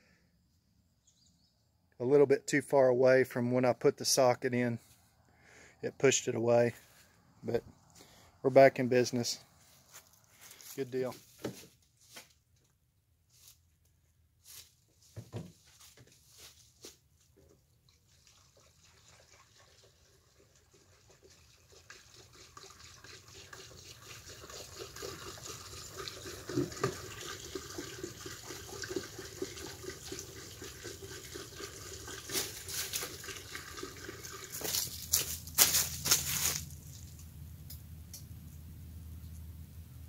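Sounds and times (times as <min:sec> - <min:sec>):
fuel glugging through funnel: 0:17.6 - 0:35.4.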